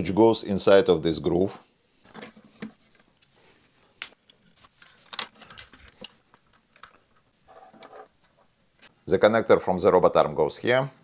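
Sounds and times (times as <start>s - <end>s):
plastic parts clicking: 4.0s - 7.2s.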